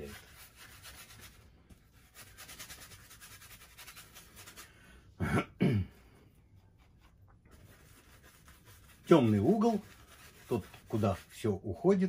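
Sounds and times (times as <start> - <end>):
paintbrush scrubbing on canvas: 0.0 - 4.9, 6.3 - 11.9
man coughing: 5.2 - 6.1.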